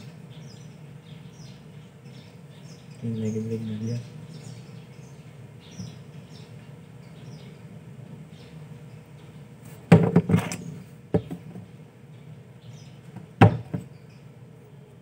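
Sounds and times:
steady low hum: 0.0s - 15.0s
small tools knocking on workbench: 9.9s - 11.7s.

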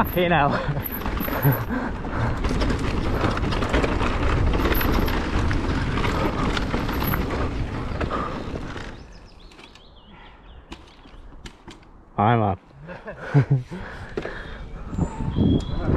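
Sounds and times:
bike rattling and clicking: 0.0s - 10.0s, 10.7s - 12.0s
bike tyres rumbling on dirt and rock: 0.0s - 10.0s.

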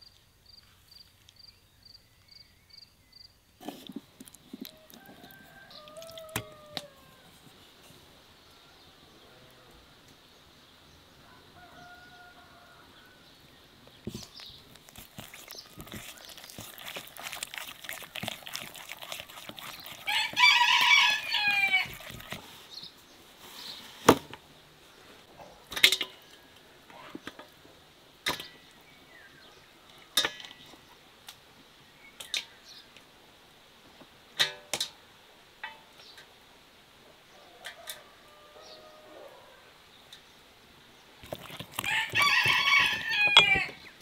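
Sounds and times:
crackling handling noise: 3.6s - 8.0s, 13.8s - 22.9s, 41.2s - 44.0s
rooster crowing: 4.7s - 7.4s, 11.2s - 13.2s, 20.0s - 22.3s, 37.4s - 39.7s, 41.8s - 43.8s.

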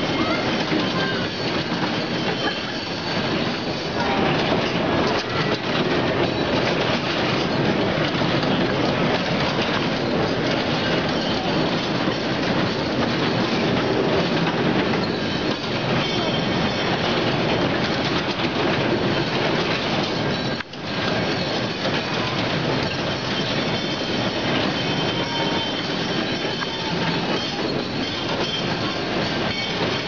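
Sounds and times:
rumbling clatter of ride cars: 0.0s - 30.0s
faint high squeal: 23.2s - 30.0s.

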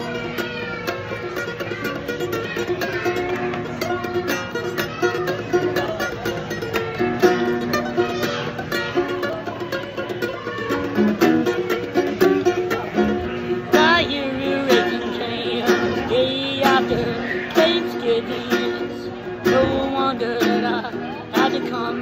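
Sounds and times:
fingerpicked acoustic guitar: 0.0s - 22.0s
man singing: 13.7s - 22.0s.

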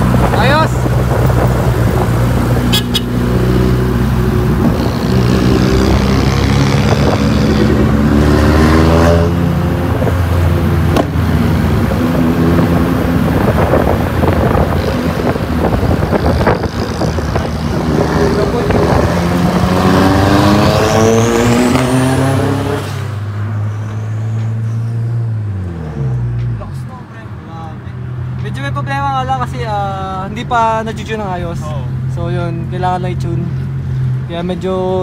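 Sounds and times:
car engine accelerating: 0.0s - 26.8s
sharp exhaust pops: 10.9s - 11.2s.

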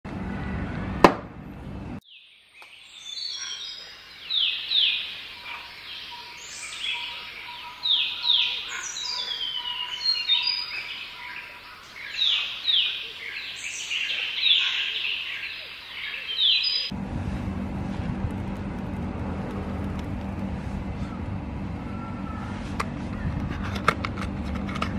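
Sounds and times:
low outdoor rumble: 0.1s - 2.0s, 16.9s - 24.9s
birds chirping: 2.0s - 16.9s.

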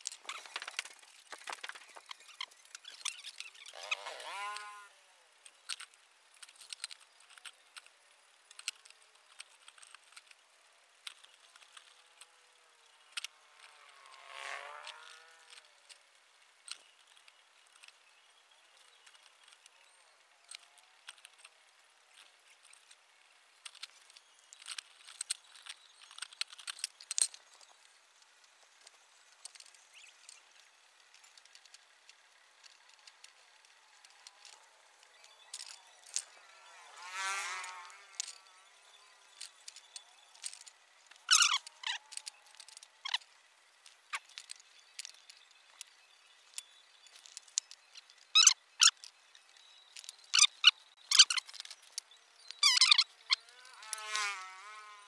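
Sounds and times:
squeaky scrape: 0.0s - 4.9s, 39.4s - 43.2s
metallic clicks of wire spokes: 0.0s - 10.4s, 11.0s - 16.0s, 23.6s - 45.9s.

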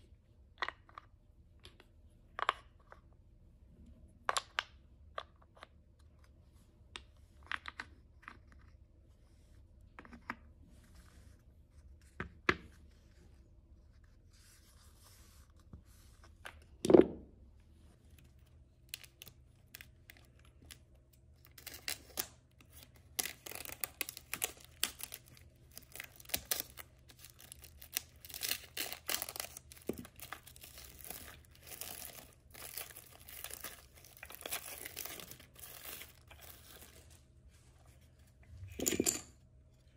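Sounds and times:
wrapping crinkling and tearing: 18.3s - 37.2s.

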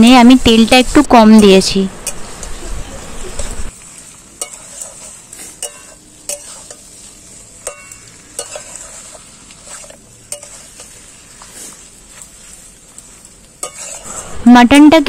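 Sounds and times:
frying sizzle: 0.0s - 15.0s
metal spatula scraping a pan: 3.4s - 15.0s.

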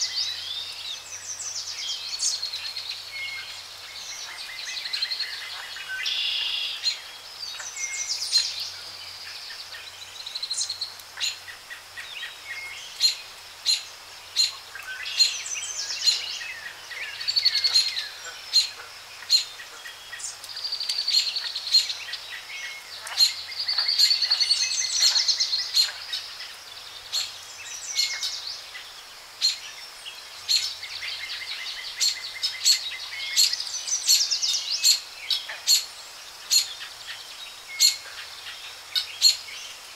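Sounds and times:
birds chirping and trilling: 0.0s - 39.9s
faint outdoor hiss: 0.0s - 39.9s.

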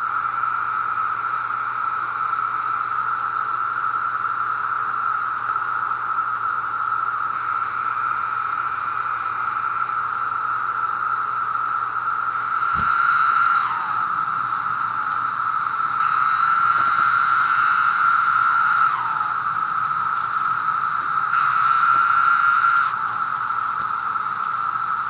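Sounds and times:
cicadas droning: 0.0s - 25.0s.

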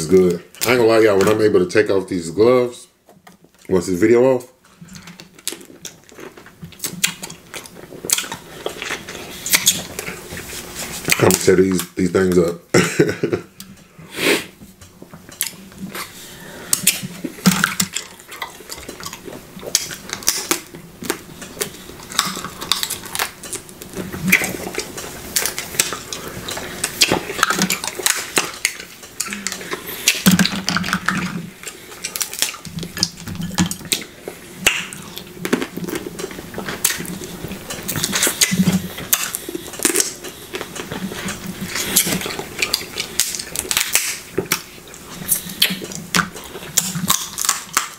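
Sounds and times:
sucking and chewing: 4.6s - 12.5s, 13.5s - 47.9s
crab shells cracking: 16.7s - 44.7s, 45.3s - 47.9s.

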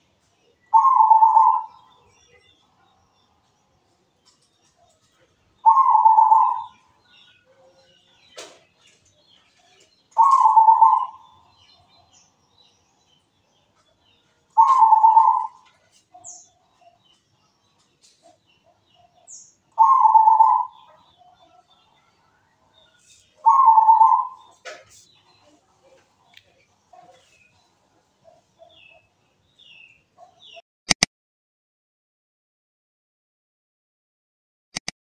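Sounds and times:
small birds chirping: 0.0s - 30.6s
dove cooing: 0.7s - 2.1s, 4.8s - 8.6s, 9.4s - 11.4s, 14.6s - 17.0s, 18.2s - 21.8s, 23.1s - 24.9s.

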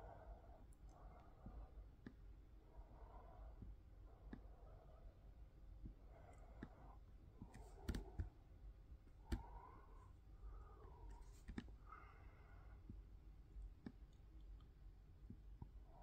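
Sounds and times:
laptop controls clicking: 7.4s - 8.3s, 9.3s - 9.6s.

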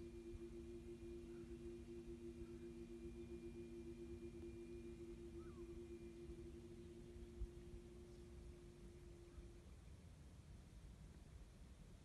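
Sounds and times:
faint low outdoor rumble: 0.0s - 12.0s
faint steady hum: 0.0s - 12.0s.

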